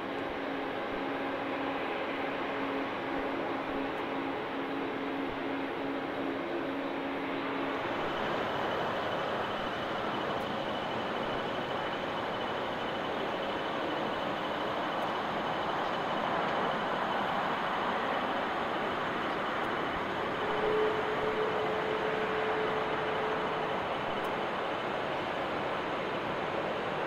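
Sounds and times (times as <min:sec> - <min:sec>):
faint high whine: 0:00.0 - 0:27.0
jet engines roaring: 0:00.1 - 0:27.0.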